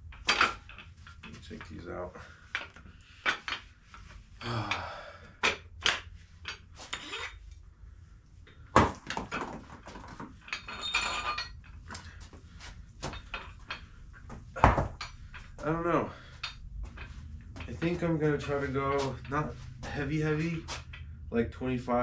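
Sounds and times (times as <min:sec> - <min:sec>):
weight plates clanking: 0:09.2 - 0:12.2, 0:13.0 - 0:21.2.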